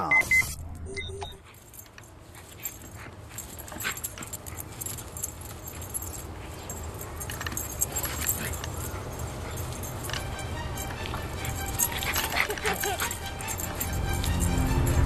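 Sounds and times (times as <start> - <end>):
metal collar jingling: 1.4 - 15.0
dog whining: 2.7 - 14.0.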